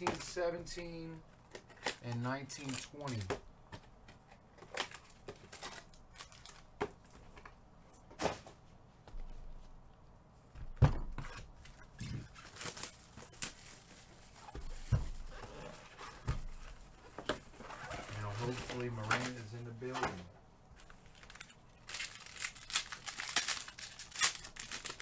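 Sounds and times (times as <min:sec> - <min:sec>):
packaging tearing and crinkling: 0:01.7 - 0:03.3, 0:04.7 - 0:06.6, 0:21.1 - 0:25.0.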